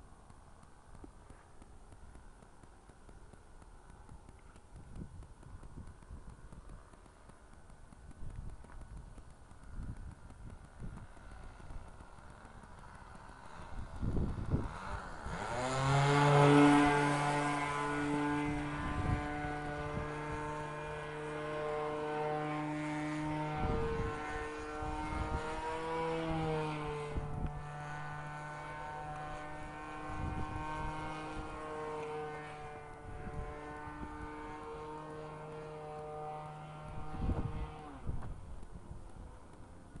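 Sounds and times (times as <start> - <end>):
model plane engine droning: 0.0 - 40.0.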